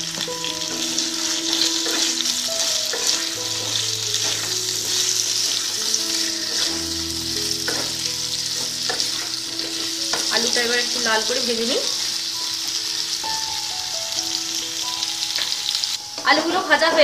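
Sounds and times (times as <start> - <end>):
potatoes sizzling in oil: 0.0 - 17.0
wooden spatula stirring: 0.2 - 6.9.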